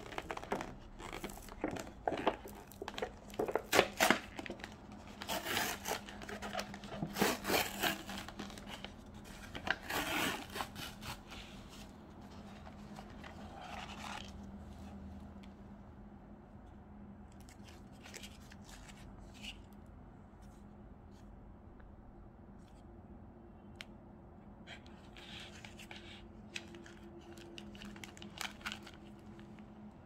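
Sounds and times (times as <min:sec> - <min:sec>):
packaging tearing and crinkling: 0:00.0 - 0:08.9, 0:26.6 - 0:29.5.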